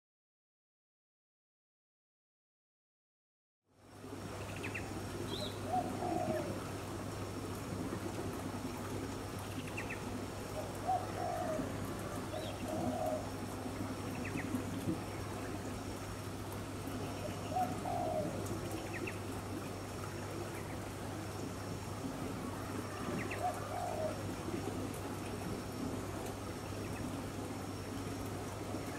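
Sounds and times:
doves cooing: 5.3s - 16.2s, 16.9s - 28.9s.

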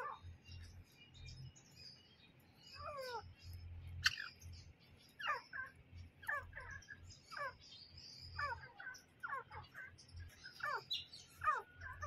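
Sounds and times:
small birds chirping: 0.0s - 12.0s
francolin calling: 2.6s - 12.0s.

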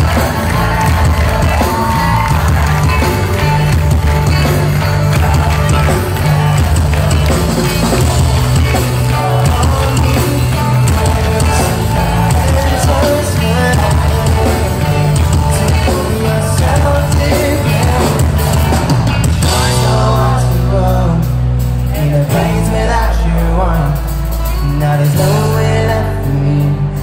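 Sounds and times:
drum kit: 0.0s - 27.0s
person singing: 0.0s - 27.0s
pop-punk band playing live: 0.0s - 27.0s.

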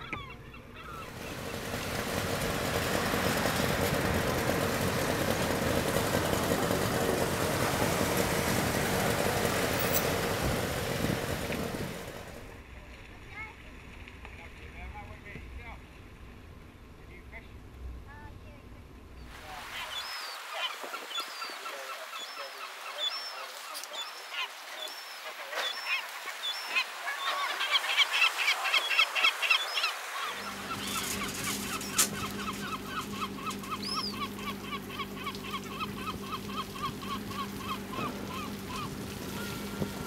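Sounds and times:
gulls calling: 0.0s - 12.6s, 19.2s - 40.0s.

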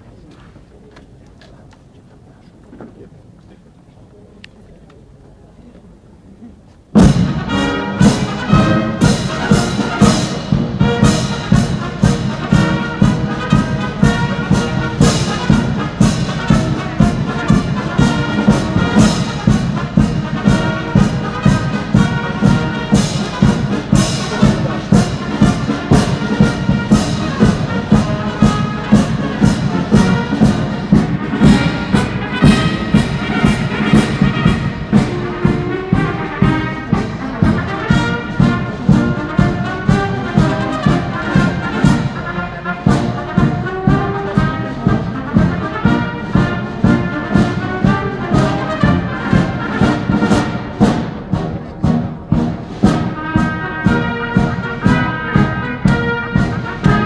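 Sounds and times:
brass band melody: 6.8s - 57.0s
steady drum beat: 6.8s - 57.0s.

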